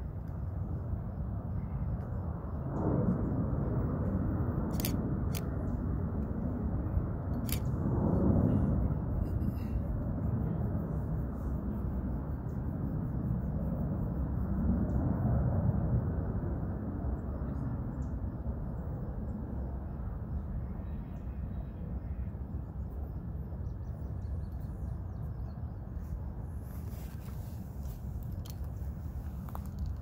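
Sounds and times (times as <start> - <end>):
wind buffeting microphone: 0.0 - 20.8.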